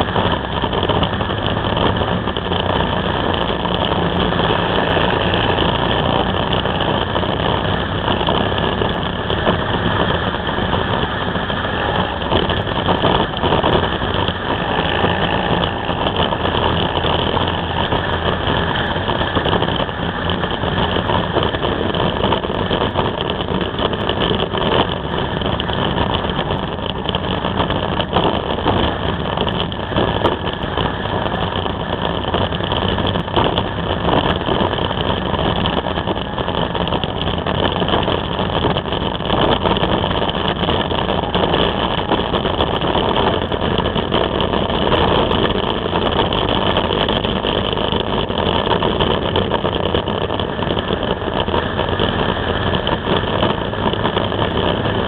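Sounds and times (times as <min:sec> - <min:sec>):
motorcycle engine running: 0:00.0 - 0:55.0
wind and road noise: 0:00.0 - 0:55.0.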